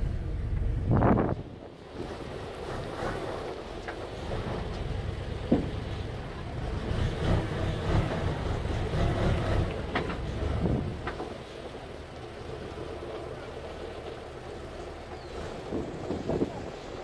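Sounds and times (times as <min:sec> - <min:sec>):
wind on microphone: 0:00.0 - 0:03.5, 0:04.2 - 0:11.2, 0:15.2 - 0:17.0
diesel truck engine droning: 0:00.0 - 0:17.0.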